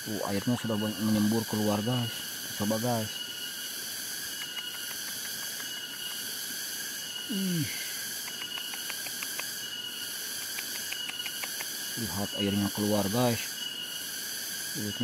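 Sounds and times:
insects chirring: 0.0 - 15.0
quick ticks: 4.4 - 6.1, 8.2 - 9.6, 10.3 - 11.8.

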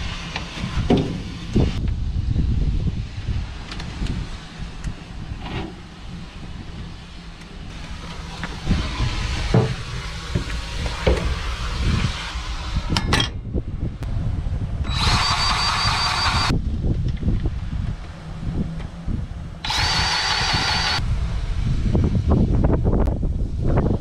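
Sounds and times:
steam hiss: 0.0 - 2.3, 5.8 - 13.0
steady low rumble: 0.0 - 24.0.

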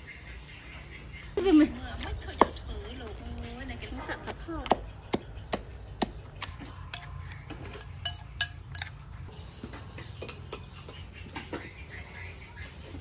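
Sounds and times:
spoons clinking on ceramic plates: 6.9 - 9.1.

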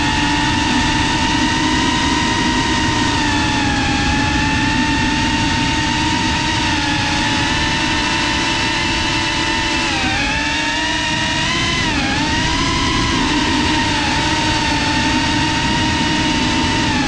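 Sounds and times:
drone motors whining: 0.0 - 17.0
wind rush on microphone: 0.0 - 17.0.

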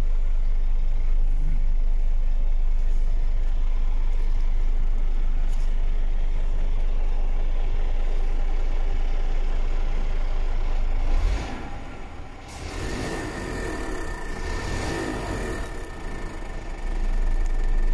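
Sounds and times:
diesel engine idling: 0.0 - 17.9
hum with thin high tone: 0.0 - 17.9.

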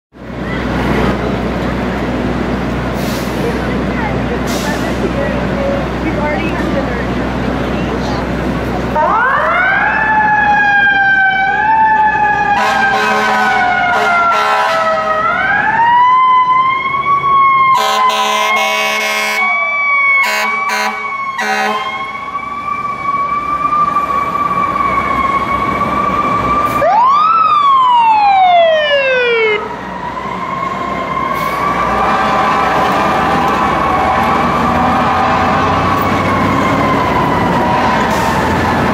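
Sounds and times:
fire engine sirens wailing: 0.2 - 38.9
air horn blasts: 12.6 - 15.1, 17.8 - 19.5, 20.2 - 22.0.

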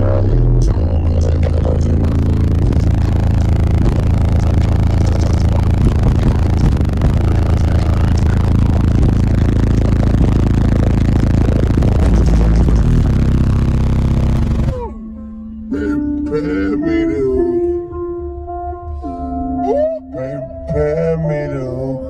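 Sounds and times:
distorted hiss over bass: 0.0 - 14.9
loud music with heavy bass: 0.0 - 22.0.

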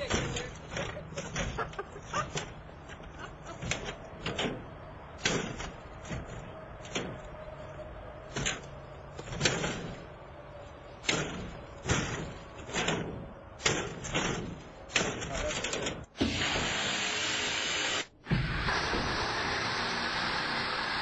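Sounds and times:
crowbar striking metal screen: 3.6 - 7.2, 8.3 - 10.1, 11.0 - 16.1.

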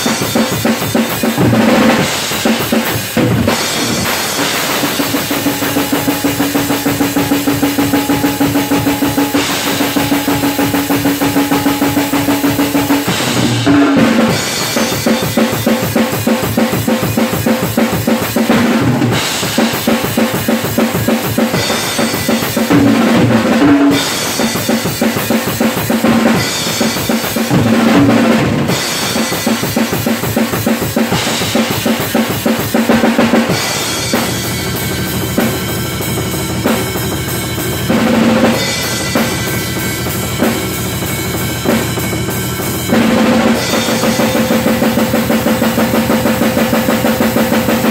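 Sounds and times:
drum kit playing: 0.0 - 47.9
tom drum fill: 0.0 - 47.9.

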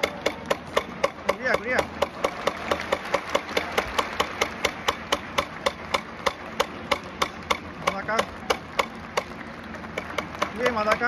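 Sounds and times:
crowd clapping in unison: 2.0 - 7.5, 8.3 - 11.0.

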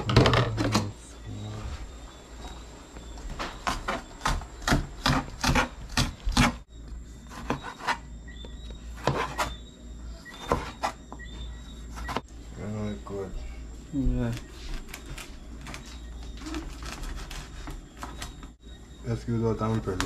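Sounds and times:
knife chopping on plastic board: 3.6 - 6.6.

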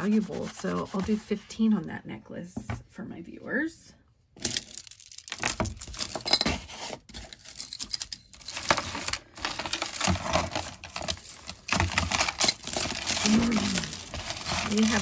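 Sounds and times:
beads and chains rattling: 4.4 - 15.0.

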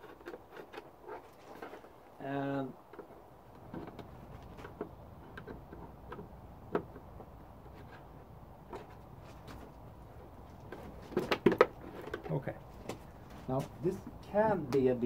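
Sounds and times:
clicks and taps on plastic panels: 2.9 - 7.9, 10.6 - 13.0
louder clicks and knocks: 10.7 - 12.3.

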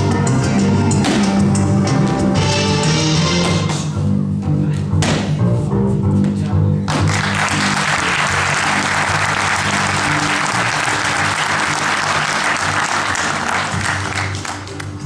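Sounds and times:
background music: 0.0 - 15.0
audience applauding: 7.0 - 15.0.

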